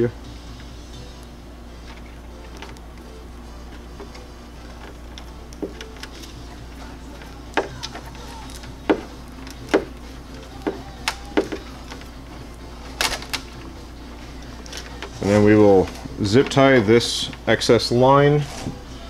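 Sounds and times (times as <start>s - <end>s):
steady low hum: 0.0s - 19.0s
clicks and snaps of electrical tape: 10.9s - 12.2s, 12.8s - 13.7s, 14.4s - 16.1s.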